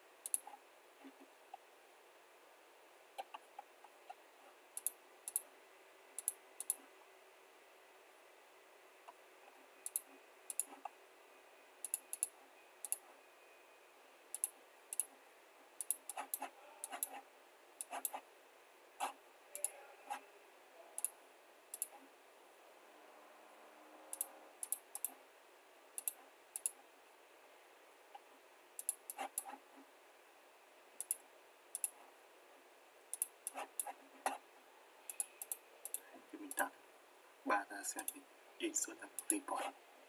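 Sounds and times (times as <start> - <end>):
faint steady hiss: 0.0 - 40.0
computer mouse clicking: 0.2 - 1.6, 3.2 - 4.2, 4.8 - 5.5, 6.2 - 6.8, 9.8 - 10.9, 11.8 - 13.1, 14.3 - 15.1, 15.8 - 17.2, 17.8 - 18.2, 19.0 - 19.8, 21.0 - 22.0, 24.1 - 25.2, 26.0 - 26.8, 28.8 - 29.6, 31.0 - 32.0, 33.1 - 34.4, 35.1 - 36.7, 38.0 - 38.2, 39.1 - 39.7.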